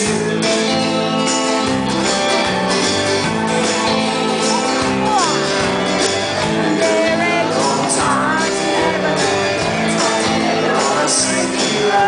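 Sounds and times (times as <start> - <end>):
live rock band playing: 0.0 - 12.0
man singing: 6.4 - 12.0.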